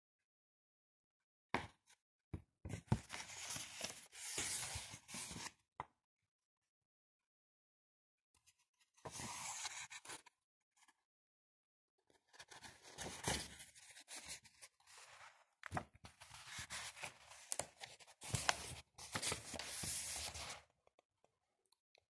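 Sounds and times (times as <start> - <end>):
book pages turning: 2.9 - 5.5, 12.3 - 20.7.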